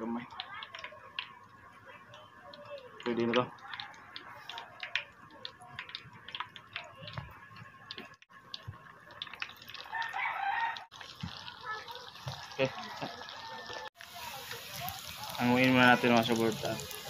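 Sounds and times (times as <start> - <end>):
hot oil crackling and popping: 0.0 - 17.0
oil hissing as meat added: 14.0 - 17.0.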